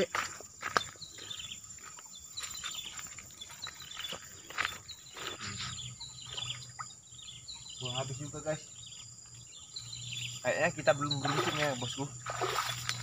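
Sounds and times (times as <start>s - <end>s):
footsteps on dirt path: 0.0s - 6.6s
high insect whine: 0.0s - 13.0s
bird chirps: 0.6s - 13.0s.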